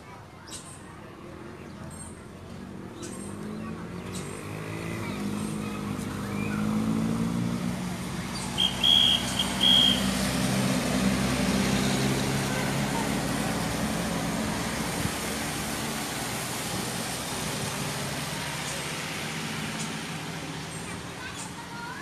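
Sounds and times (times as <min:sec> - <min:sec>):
truck driving on wet road: 0:01.4 - 0:22.0
shrill whistle blasts: 0:08.5 - 0:10.2.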